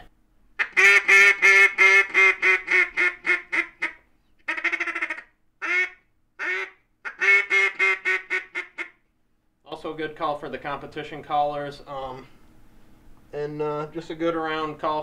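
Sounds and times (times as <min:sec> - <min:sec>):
duck call quacks: 0:00.6 - 0:09.0.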